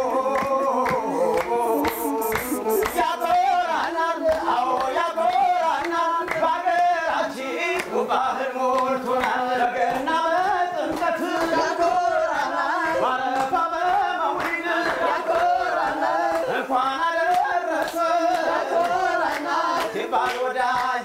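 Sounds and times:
hand claps: 0.0 - 8.0, 8.7 - 12.6, 13.3 - 16.6, 17.3 - 21.0
group singing a chant: 0.0 - 21.0.

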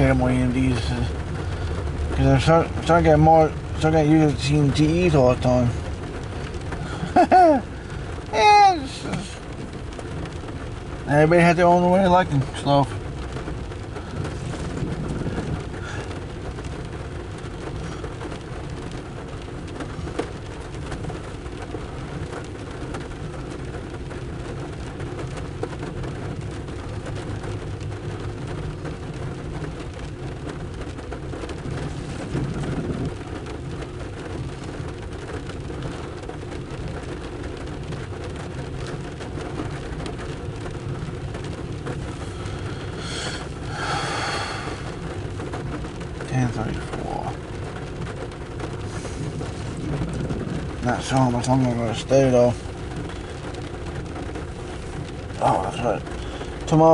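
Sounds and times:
rain on vehicle roof: 0.0 - 56.9
low rumble: 12.9 - 19.2, 31.5 - 34.7, 47.3 - 55.4.

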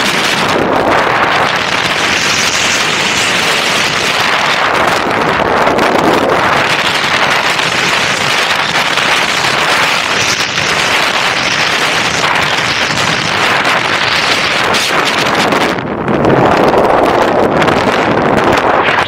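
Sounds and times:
faint crackle: 0.0 - 5.5, 6.3 - 15.6
wind rushing over microphone: 0.0 - 19.0
skis sliding on snow: 1.7 - 4.7.

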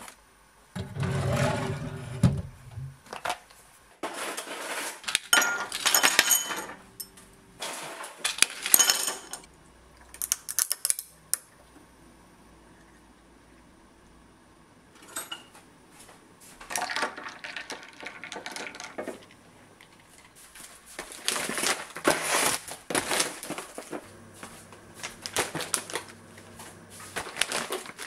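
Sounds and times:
rustling and crunching: 3.6 - 6.4, 16.5 - 28.0.

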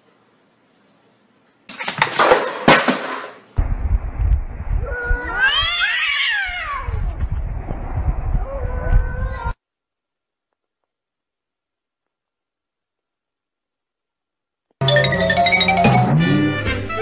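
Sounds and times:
objects clattering off a desk: 1.7 - 3.6
low rumble: 3.6 - 5.8, 6.7 - 9.6
cat yowling: 4.8 - 7.1.

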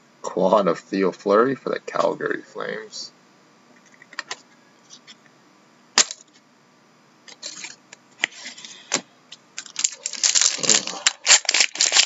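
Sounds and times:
card pack wrappers rustling: 9.6 - 12.0.

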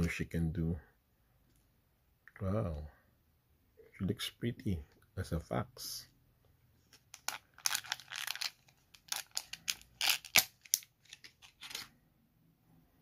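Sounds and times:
plastic wrapper crinkling: 7.0 - 11.9.

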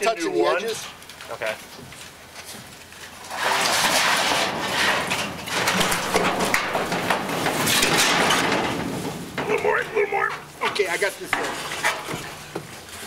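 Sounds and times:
metal roofing panel scraping: 3.1 - 9.8, 10.4 - 13.0.

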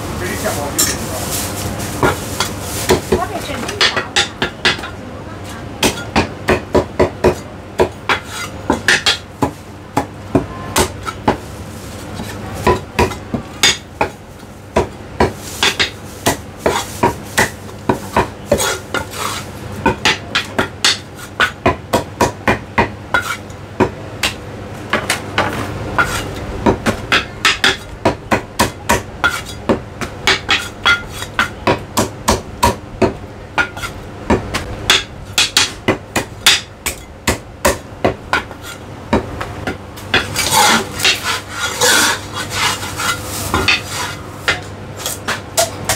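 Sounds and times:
cleaver chopping on wooden block: 19.8 - 40.3.

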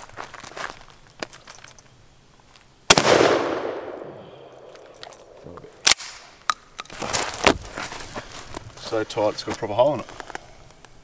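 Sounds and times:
shotgun shot with echo: 2.9 - 4.6.

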